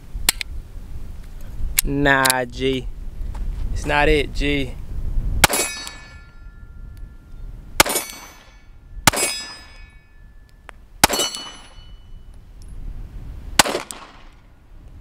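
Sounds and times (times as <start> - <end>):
pistol shots: 5.4 - 6.2, 7.8 - 9.8, 11.0 - 11.8, 13.6 - 14.4
steel target ringing: 5.4 - 12.2.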